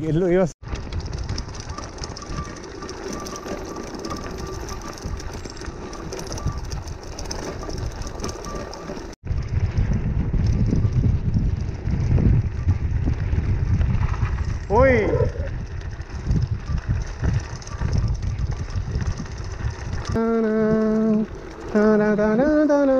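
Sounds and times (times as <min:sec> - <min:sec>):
bike rattling: 0:00.2 - 0:22.9
wind on microphone: 0:00.6 - 0:22.9.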